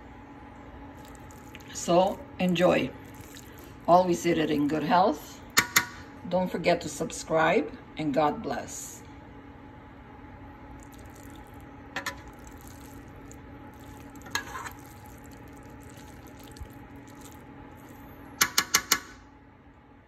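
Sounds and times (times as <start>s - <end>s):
steady low hum: 0.0s - 20.0s
metal spoon stirring in a pan: 10.9s - 19.0s.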